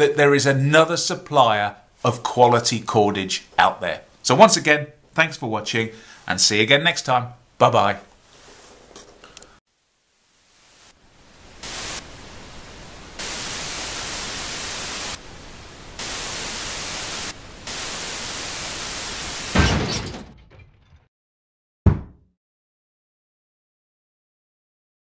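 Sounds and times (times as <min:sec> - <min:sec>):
television static hiss: 0:09.7 - 0:19.6
loud thump: 0:19.5 - 0:21.1, 0:21.9 - 0:22.3
short sharp knock: 0:21.9 - 0:22.2.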